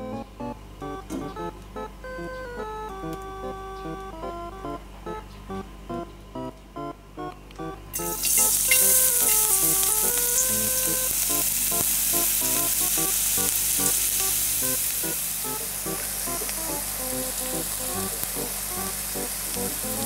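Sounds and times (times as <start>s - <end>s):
light playful background music: 0.0s - 20.0s
garlic sizzling in a frying pan: 8.0s - 20.0s.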